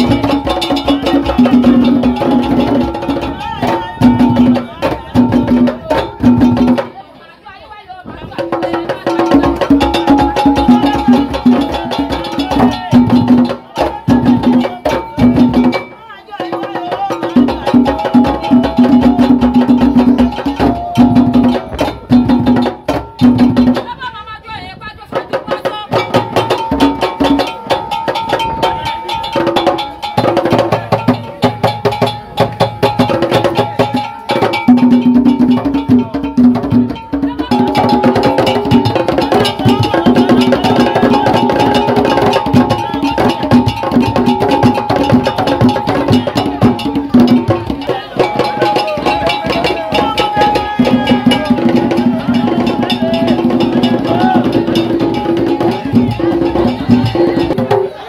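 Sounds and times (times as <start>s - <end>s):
fast drumming: 0.0s - 7.0s, 8.0s - 58.0s
group singing: 8.6s - 15.6s, 37.5s - 43.8s, 45.7s - 58.0s.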